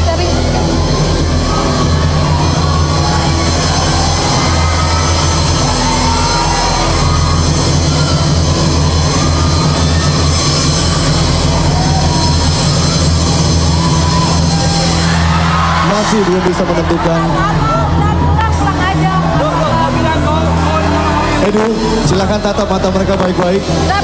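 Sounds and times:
background music with low drone: 0.0s - 24.0s.

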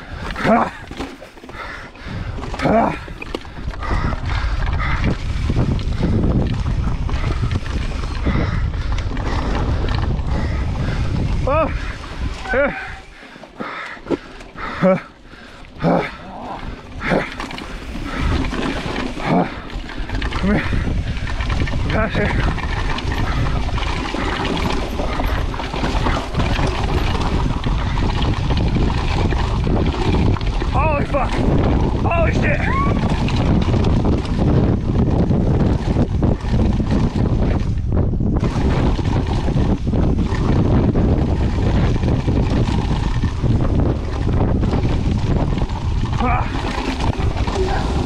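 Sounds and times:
bike knocks and rattles: 0.0s - 12.8s, 16.6s - 48.0s
wind on microphone: 0.0s - 13.2s, 15.8s - 48.0s
bike tyres rolling on rocky dirt: 0.0s - 48.0s.

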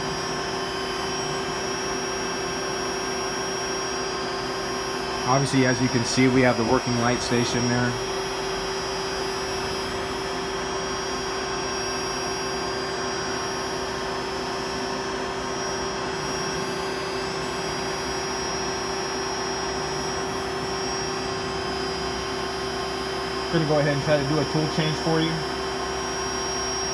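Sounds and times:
drill machine whirring hum: 0.0s - 26.9s
faint high whine: 0.0s - 26.9s.

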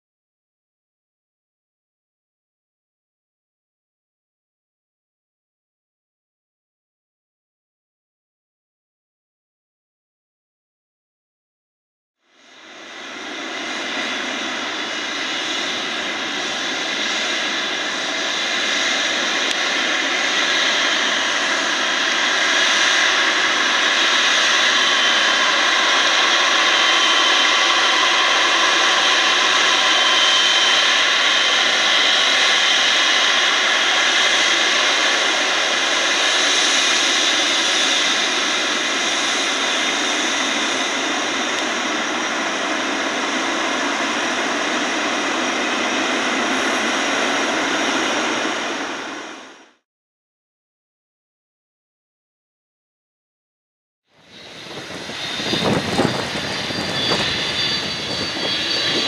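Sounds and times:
jet engine whine: 12.2s - 49.8s, 54.1s - 59.0s.

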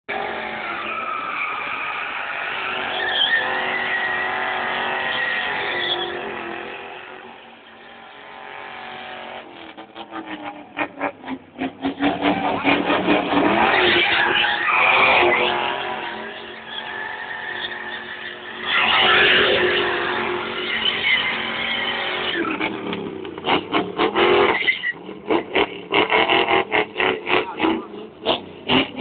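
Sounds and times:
tyres squealing: 0.4s - 6.5s
car engine revving high: 2.2s - 29.0s.

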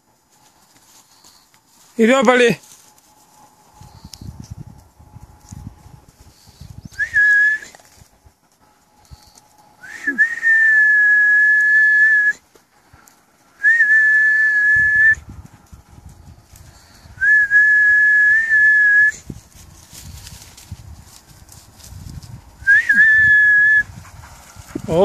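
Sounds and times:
high-pitched whistle blasts: 6.7s - 7.7s, 9.8s - 12.4s, 13.6s - 15.2s, 17.1s - 19.2s, 22.6s - 23.9s.

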